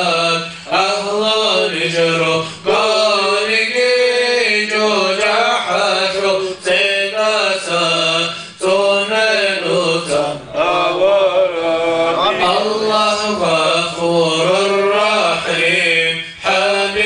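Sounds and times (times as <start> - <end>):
man chanting melodic recitation: 0.0 - 17.0.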